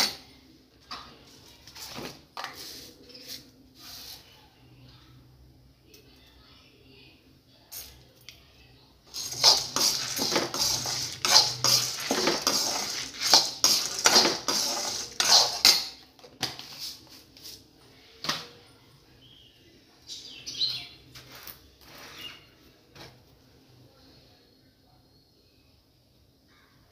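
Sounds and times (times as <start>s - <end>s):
grains rattling against pan: 9.1s - 15.9s
spoon stirring in iron pan: 9.1s - 16.9s.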